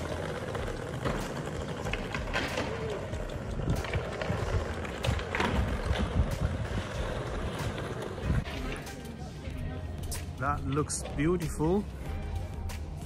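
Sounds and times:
skateboard clacks: 0.0 - 9.2
skateboards rolling on stone: 0.0 - 9.3.

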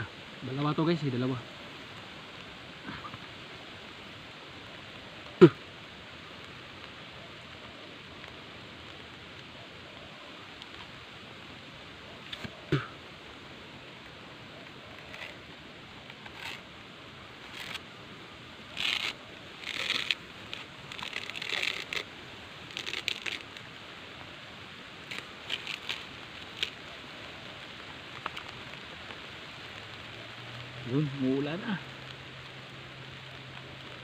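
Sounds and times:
steady background hiss: 0.0 - 34.0
hands rustling plant material: 18.6 - 24.3, 25.0 - 28.9.

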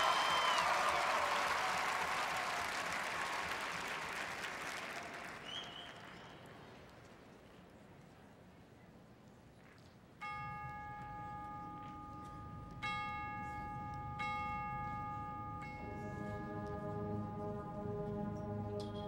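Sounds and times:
tubular bells ringing: 10.2 - 19.0
band holding low chord: 10.8 - 19.0.

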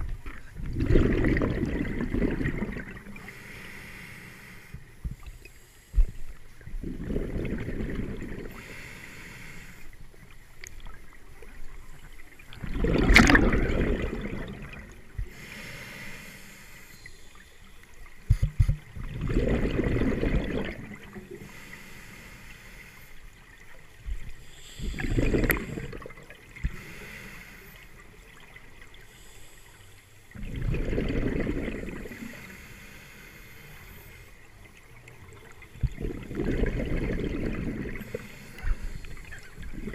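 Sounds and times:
exhaled bubbles rumbling: 0.0 - 3.3, 6.6 - 8.6, 11.7 - 15.3, 18.3 - 21.4, 24.0 - 26.7, 30.3 - 32.4, 34.7 - 39.9
regulator inhalation hiss: 3.2 - 6.3, 8.6 - 10.0, 15.3 - 17.7, 21.4 - 23.2, 26.7 - 28.0, 32.1 - 34.3, 38.0 - 39.6.

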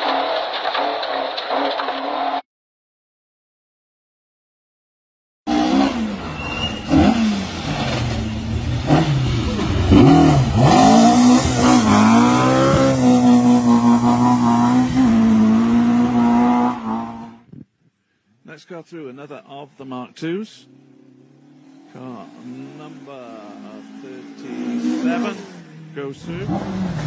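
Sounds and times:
rally car engine revving hard: 5.5 - 17.4, 21.4 - 27.0.

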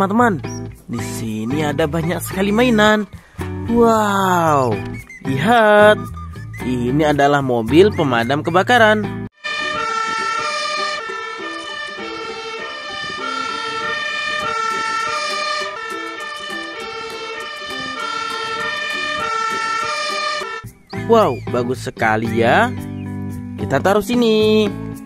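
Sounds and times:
fire engine two-tone siren: 9.4 - 20.7.

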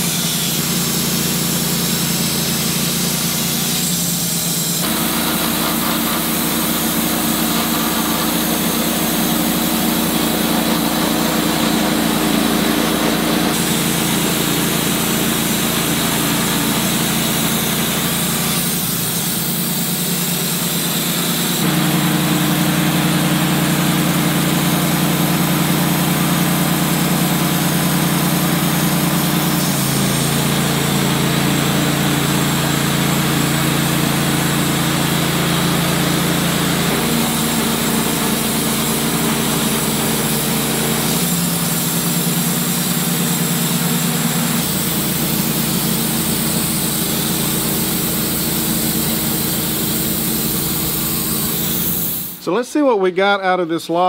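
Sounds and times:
band blade sawing log: 0.0 - 42.0
sawmill engine humming: 0.0 - 54.0.

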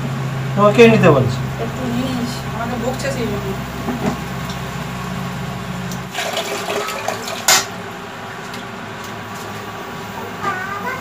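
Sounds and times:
water running: 5.8 - 7.9.

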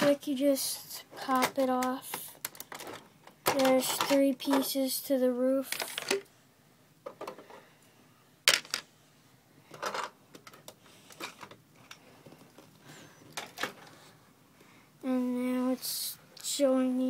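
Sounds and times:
plastic pieces clicking: 1.3 - 4.7.

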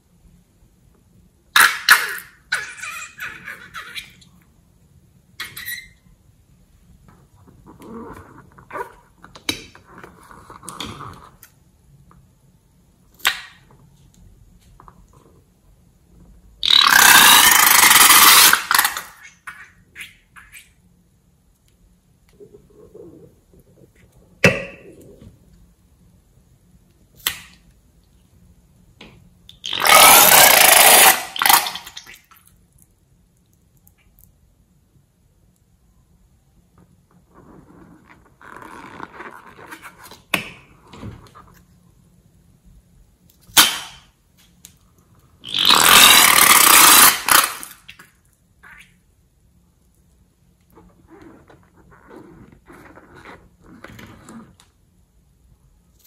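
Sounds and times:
rubber balloons squeaking: 5.4 - 6.0, 16.6 - 19.1, 29.6 - 31.8, 45.4 - 47.6.

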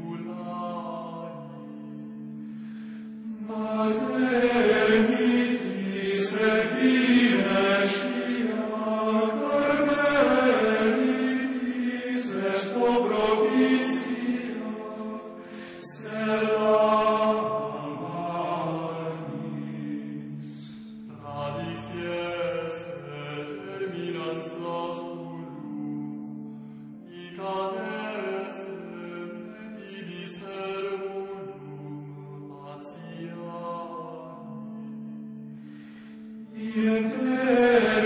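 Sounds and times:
voices chanting together: 2.7 - 25.4, 35.8 - 38.0.

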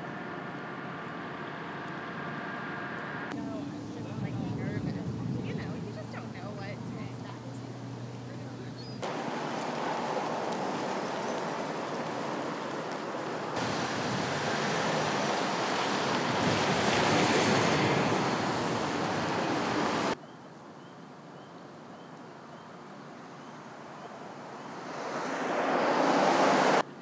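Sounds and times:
wind on microphone: 4.1 - 7.2, 9.0 - 20.2.

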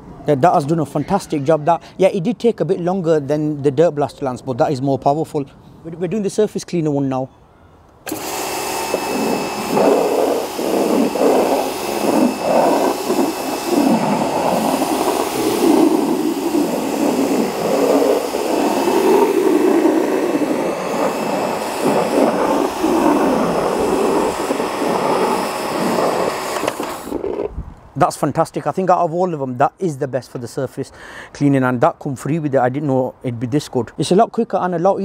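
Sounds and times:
pressure washer running: 8.0 - 27.3
water jet hissing on paving: 8.1 - 27.4.

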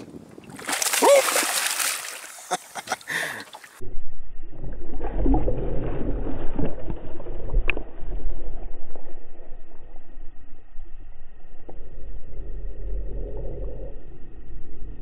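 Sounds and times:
fish thrashing and splashing: 0.5 - 2.6
deep rumble: 3.8 - 15.0.

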